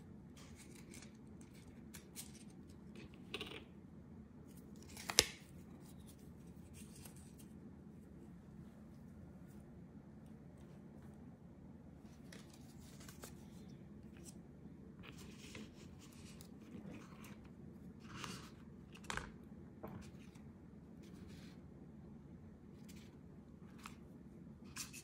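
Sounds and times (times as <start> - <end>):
low steady hum: 0.0 - 25.0
paper cards rustling: 0.4 - 3.2, 4.5 - 7.6, 12.1 - 14.4, 15.0 - 19.4.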